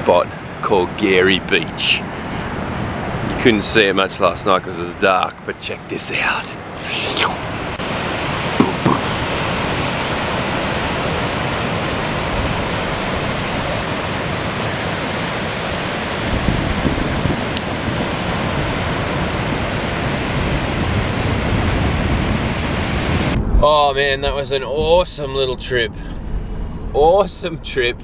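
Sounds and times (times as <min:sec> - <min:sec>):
ocean waves breaking: 0:02.0 - 0:03.6, 0:06.1 - 0:23.4
wind rumble on microphone: 0:07.4 - 0:28.0.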